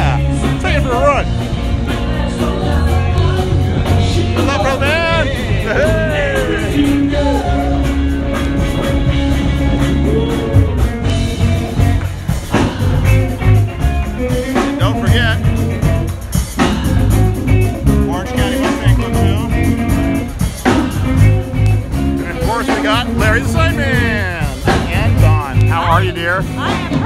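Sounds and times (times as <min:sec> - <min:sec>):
live rock and roll band: 0:00.0 - 0:27.0
person singing: 0:01.9 - 0:11.8.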